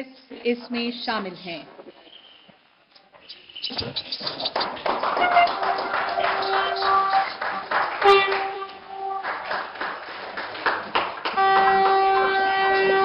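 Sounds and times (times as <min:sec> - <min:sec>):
crowd noise: 0:03.7 - 0:13.0
train horn blasts: 0:05.2 - 0:09.7, 0:11.2 - 0:13.0.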